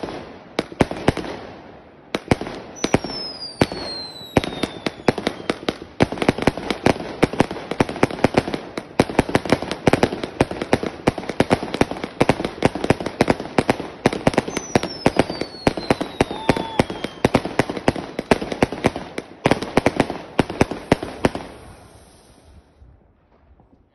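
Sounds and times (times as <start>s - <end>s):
faint falling whistle: 14.5s - 17.2s.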